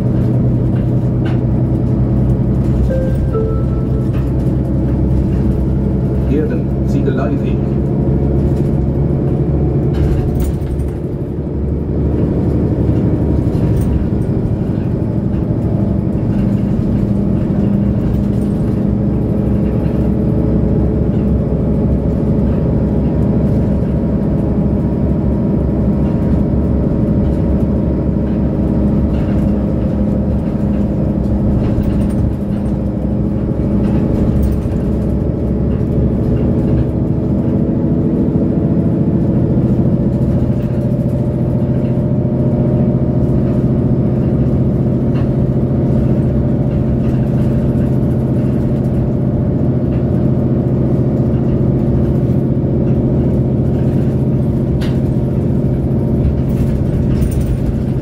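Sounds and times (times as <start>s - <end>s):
bus diesel engine idling: 0.0s - 58.0s.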